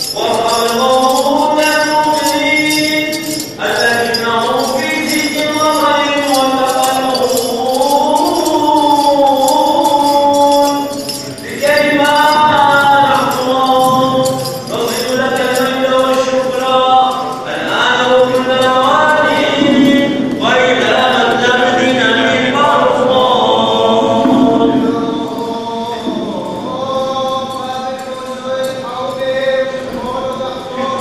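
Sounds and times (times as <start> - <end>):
voices singing church chant: 0.0 - 31.0.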